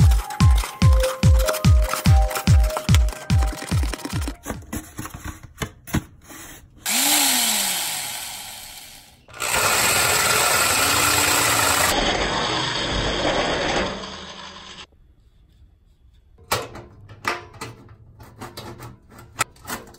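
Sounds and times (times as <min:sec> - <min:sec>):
electric drill boring through metal: 0:06.8 - 0:14.9.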